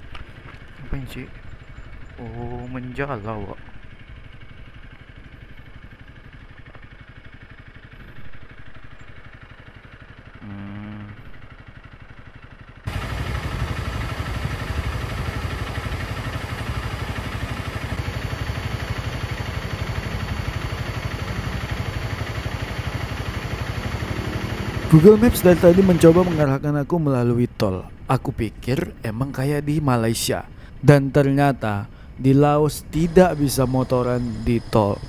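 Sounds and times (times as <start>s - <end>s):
motorcycle engine running: 0.0s - 27.2s, 31.9s - 35.0s
riding wind rush: 12.9s - 26.4s.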